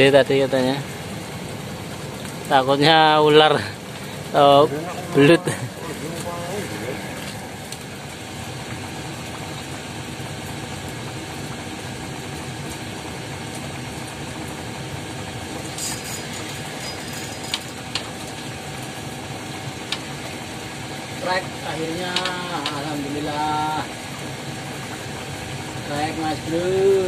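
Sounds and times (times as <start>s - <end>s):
rain on a corrugated roof: 0.0s - 27.0s.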